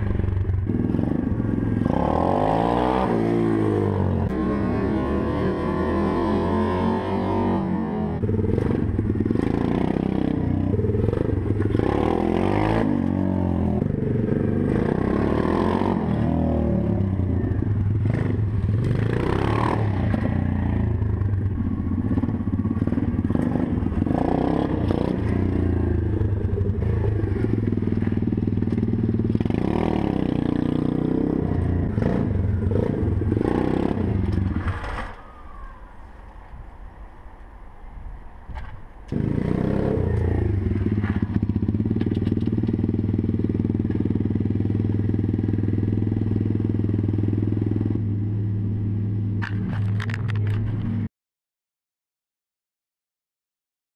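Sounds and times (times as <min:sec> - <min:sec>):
motorbike engine revving: 0:00.0 - 0:36.0.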